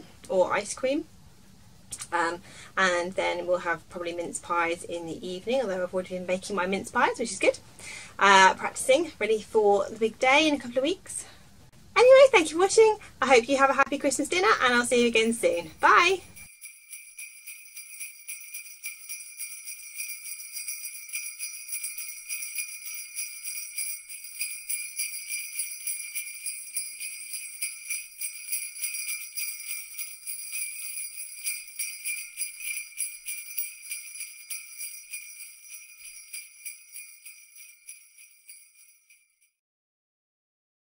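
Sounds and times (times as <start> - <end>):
jingle bells shaken: 14.8 - 39.5.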